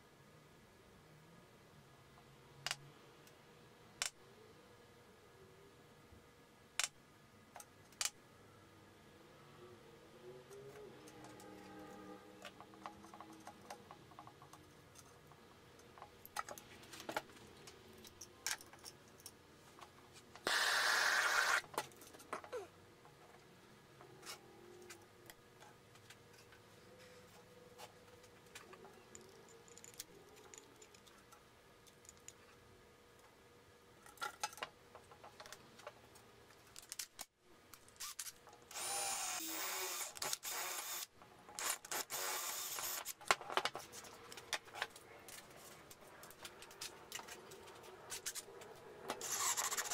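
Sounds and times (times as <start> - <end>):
cordless drill driving screw: 20.4 - 21.7, 38.0 - 43.1, 49.2 - 49.9.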